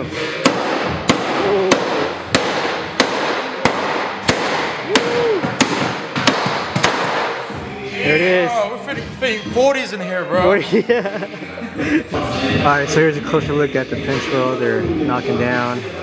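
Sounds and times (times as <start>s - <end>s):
sledgehammer striking sheet metal: 0.4s - 7.4s.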